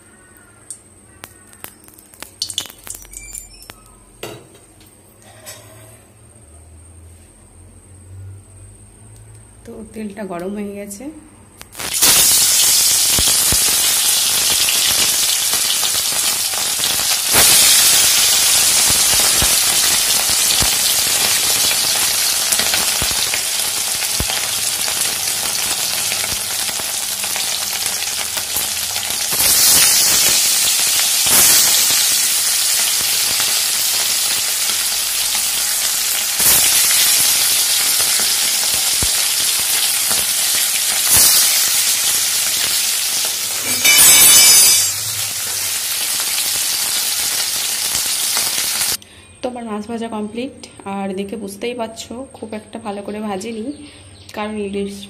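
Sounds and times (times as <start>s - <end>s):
fish sizzling in hot oil: 1.3s - 3.8s, 11.6s - 49.0s.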